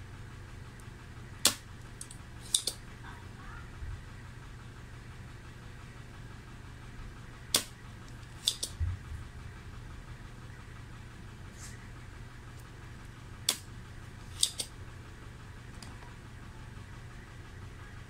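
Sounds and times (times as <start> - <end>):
steady low hum: 0.0 - 18.0
desoldering pump snapping: 0.8 - 2.8, 7.5 - 8.8, 13.4 - 14.7
quick clicks: 1.4 - 2.8.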